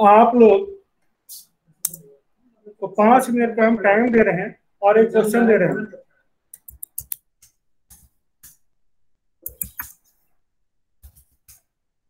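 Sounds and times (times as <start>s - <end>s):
computer keyboard keystrokes: 6.6s - 8.6s, 9.4s - 10.0s.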